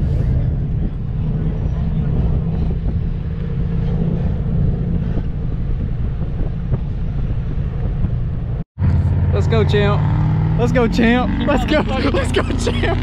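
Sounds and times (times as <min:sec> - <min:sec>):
truck engine droning: 0:00.0 - 0:13.0
wind rumbling on microphone: 0:00.0 - 0:13.0.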